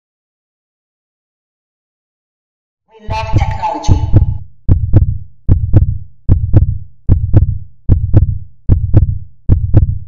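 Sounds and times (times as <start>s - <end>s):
deep double thump with click: 3.9s - 10.0s.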